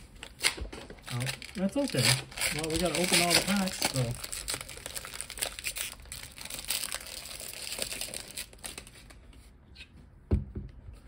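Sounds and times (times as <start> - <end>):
foil pack crinkling: 1.0 - 9.2.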